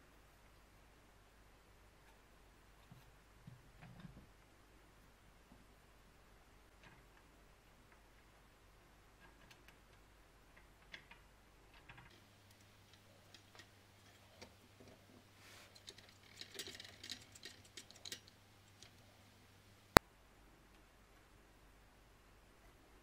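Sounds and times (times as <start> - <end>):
clicks and taps of ceramic pieces: 15.8 - 19.1.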